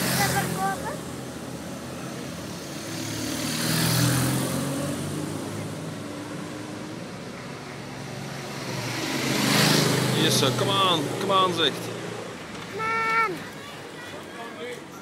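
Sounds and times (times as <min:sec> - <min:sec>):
motorcycle passing by: 0:00.0 - 0:12.3
motorcycles approaching: 0:00.0 - 0:14.0.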